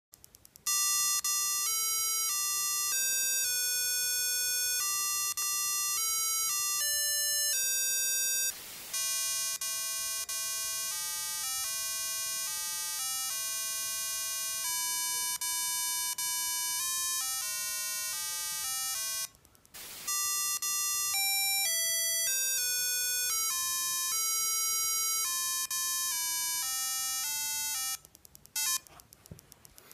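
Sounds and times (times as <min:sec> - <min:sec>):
burst of static noise: 0:08.5 - 0:09.1, 0:19.8 - 0:20.3.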